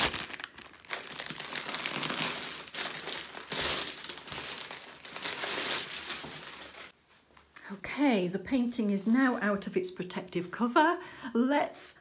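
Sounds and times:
plastic sleeve crinkling: 0.0s - 7.0s.

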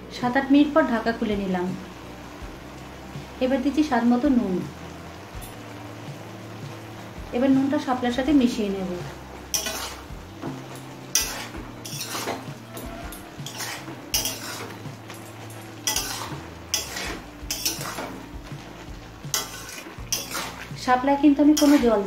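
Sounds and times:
metal spatula scraping a pan: 9.5s - 22.0s.

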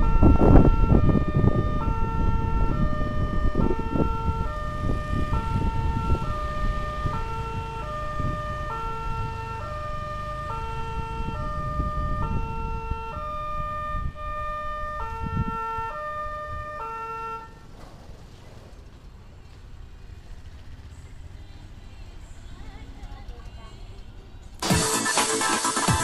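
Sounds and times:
two-tone level crossing alarm: 0.0s - 17.6s.

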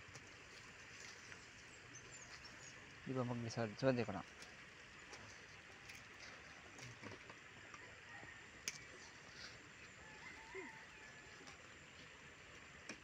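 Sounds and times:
faint bird calls: 8.9s - 11.3s.

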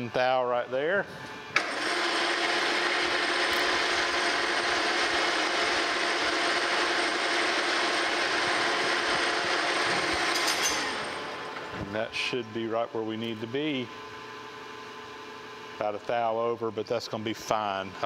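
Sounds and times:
metal lathe facing cut: 1.6s - 11.7s.

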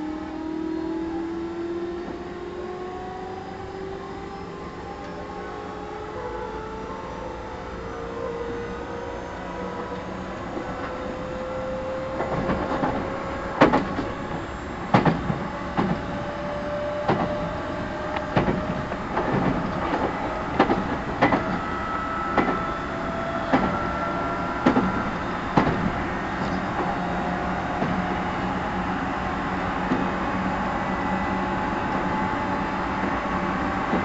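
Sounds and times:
steady train rumble: 0.0s - 34.0s
train wheels clicking over rail joints: 11.9s - 28.5s, 29.8s - 30.5s.

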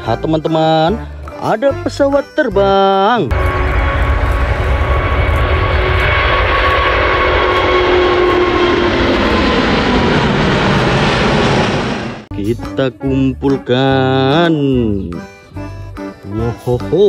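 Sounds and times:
faint jet engine whine: 3.3s - 12.3s
jet engines roaring at takeoff: 3.3s - 12.3s.

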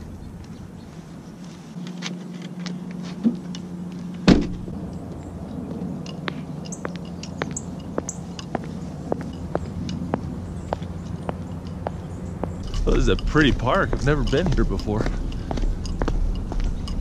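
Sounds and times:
hard-soled shoes on asphalt: 0.3s - 17.0s
car tailgate slamming shut: 4.2s - 4.7s.

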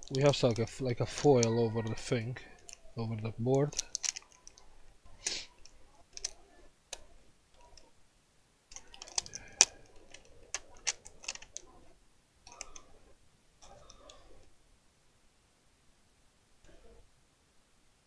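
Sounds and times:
light clicks and rustling: 3.6s - 4.7s.

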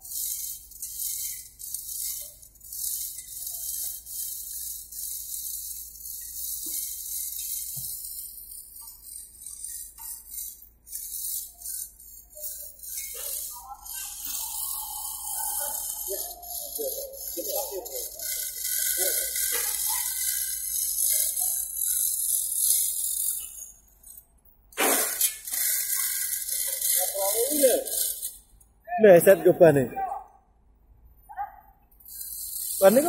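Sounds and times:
cicadas buzzing: 12.4s - 23.5s.

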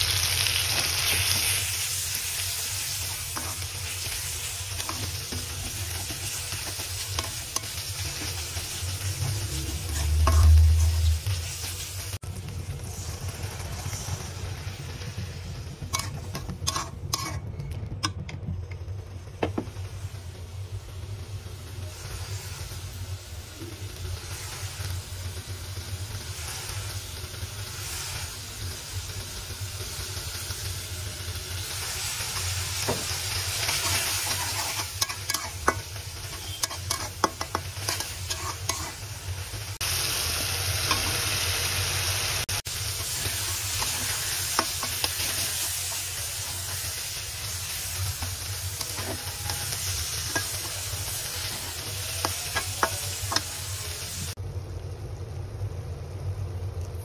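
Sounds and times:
food sizzling in a pan: 0.0s - 57.0s
spatula scraping metal pan: 4.8s - 11.4s, 15.8s - 18.2s, 33.6s - 39.0s, 48.2s - 53.5s.

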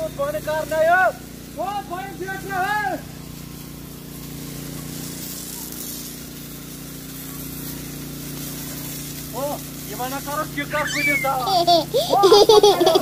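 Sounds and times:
pump motor humming: 0.0s - 13.0s
spray lance hissing: 0.0s - 13.0s.

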